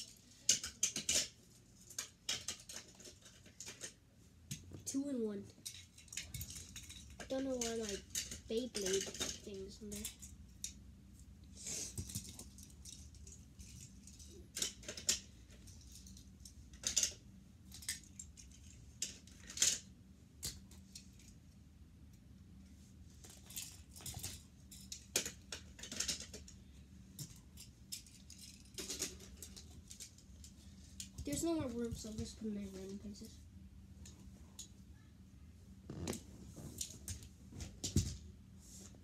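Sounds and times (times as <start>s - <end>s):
toy cars clicking and rattling: 0.0s - 4.0s, 5.6s - 10.8s, 11.7s - 21.4s, 23.2s - 26.6s, 27.2s - 31.5s.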